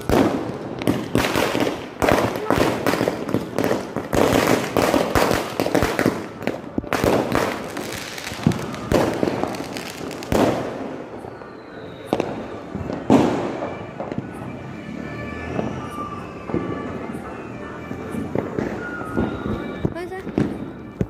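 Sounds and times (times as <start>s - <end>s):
firecracker bangs: 0.0s - 14.6s
firecrackers crackling: 0.0s - 21.0s.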